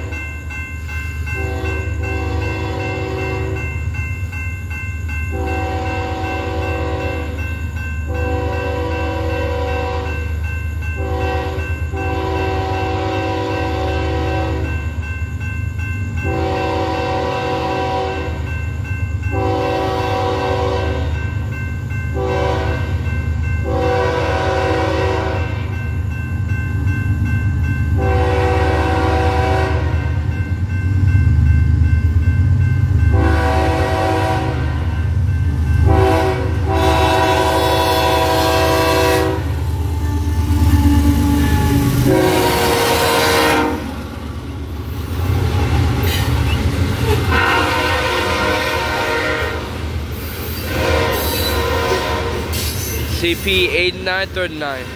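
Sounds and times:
crossing warning bell ringing: 0:00.0 - 0:54.9
train rumbling: 0:00.0 - 0:54.9
locomotive air horn blasts: 0:01.4 - 0:03.6, 0:05.3 - 0:07.4, 0:08.1 - 0:10.1, 0:11.0 - 0:14.7, 0:16.3 - 0:18.4, 0:19.3 - 0:21.2, 0:22.2 - 0:23.0, 0:23.6 - 0:25.6, 0:28.0 - 0:30.1, 0:33.1 - 0:35.0, 0:35.8 - 0:43.9, 0:47.3 - 0:49.8, 0:50.6 - 0:52.7.

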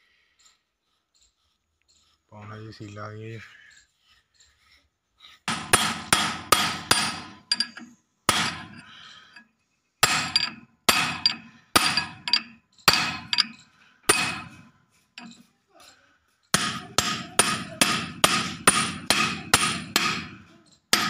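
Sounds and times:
hammer striking metal spanner: 0:05.5 - 0:09.4, 0:10.0 - 0:15.5, 0:16.5 - 0:21.0.

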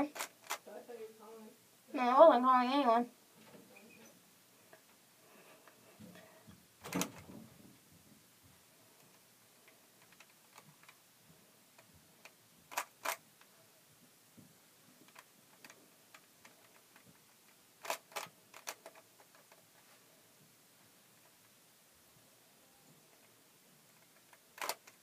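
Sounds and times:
puzzle cube plastic clicks: 0:00.0 - 0:00.6, 0:10.0 - 0:11.0, 0:11.8 - 0:13.5, 0:15.0 - 0:19.8, 0:23.1 - 0:25.0.

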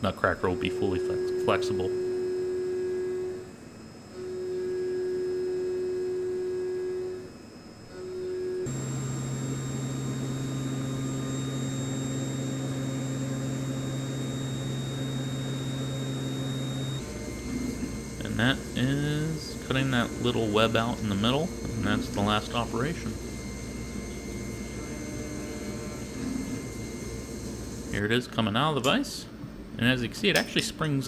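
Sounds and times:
milling machine cutting steel: 0:07.0 - 0:29.0.

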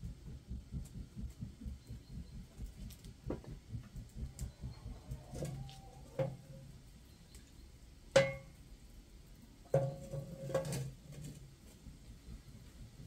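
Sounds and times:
faint low rumble: 0:00.0 - 0:09.6.

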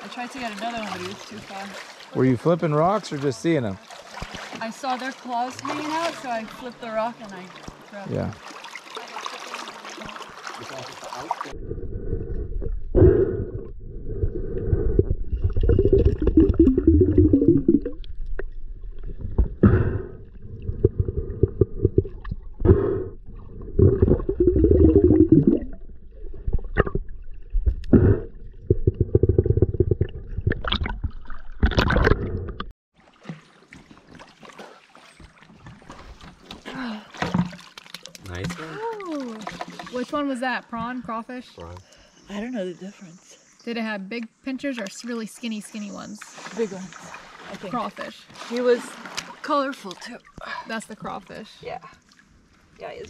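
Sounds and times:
underwater rushing river: 0:00.0 - 0:36.5
underwater knocks and clicks: 0:12.2 - 0:32.7, 0:37.2 - 0:38.6.

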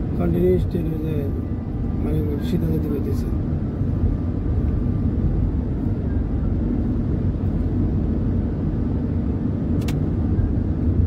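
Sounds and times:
car road and engine rumble: 0:00.0 - 0:11.0
short click: 0:09.8 - 0:10.0.

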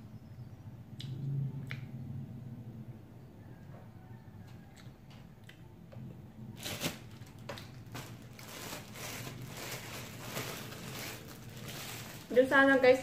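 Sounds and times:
sharp plastic crackle: 0:06.4 - 0:13.0
plastic bag crinkling: 0:06.6 - 0:13.0.

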